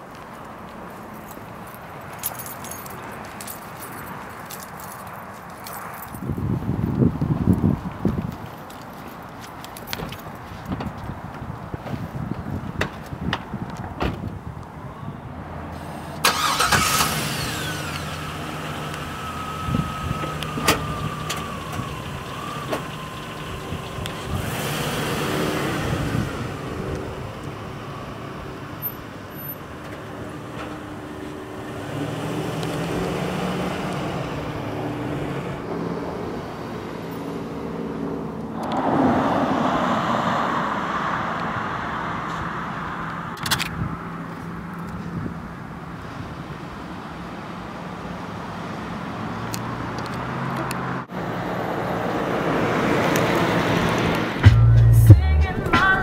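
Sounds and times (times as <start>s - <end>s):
car driving off: 15.6s - 47.8s, 48.4s - 56.0s
engine starting: 15.8s - 18.4s.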